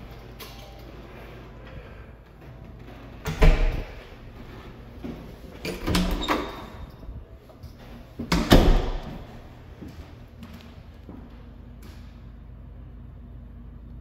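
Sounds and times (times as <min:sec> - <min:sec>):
door squeaking: 0:05.7 - 0:07.0
door thud: 0:08.3 - 0:09.3.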